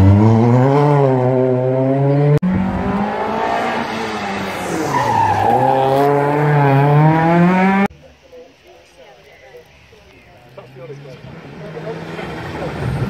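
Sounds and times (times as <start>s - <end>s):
rally car engines at full throttle: 0.0s - 7.9s, 10.8s - 13.0s
tyre squeal: 4.6s - 6.2s.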